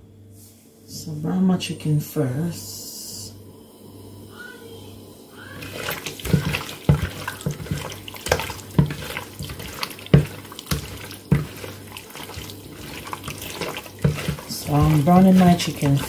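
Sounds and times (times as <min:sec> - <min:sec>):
hands squishing raw chicken: 0:05.6 - 0:16.0.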